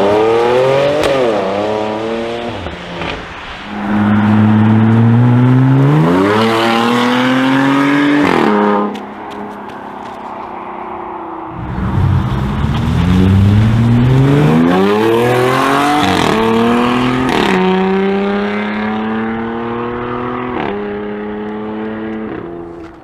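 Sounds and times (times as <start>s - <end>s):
engine accelerating hard: 11.5s - 22.2s.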